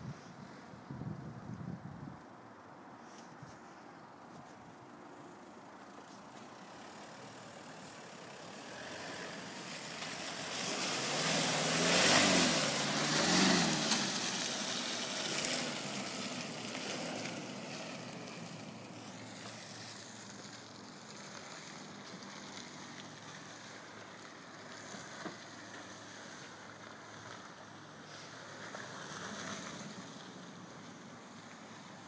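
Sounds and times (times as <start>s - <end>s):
pickup engine revving: 8.5s - 20.1s
tyres churning mud: 8.7s - 18.4s.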